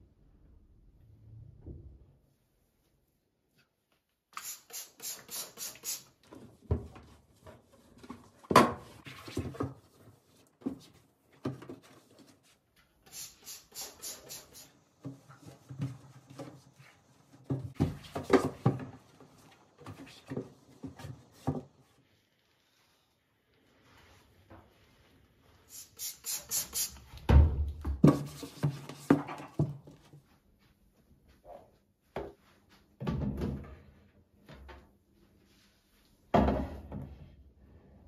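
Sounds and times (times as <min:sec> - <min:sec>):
spray bottle spritzing: 0:04.3 - 0:06.2, 0:13.0 - 0:14.7, 0:25.7 - 0:27.2
cloth wiping shelves: 0:04.4 - 0:08.0, 0:11.8 - 0:21.4, 0:22.0 - 0:27.2.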